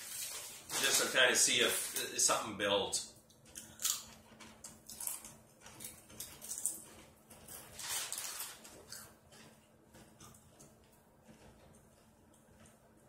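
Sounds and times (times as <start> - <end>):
people crunching chips: 0.0 - 2.4, 3.4 - 10.7.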